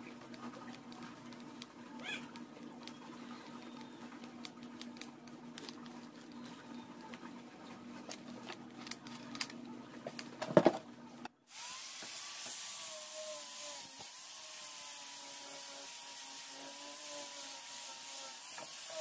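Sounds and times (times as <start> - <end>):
angle grinder sanding wood: 11.5 - 19.0.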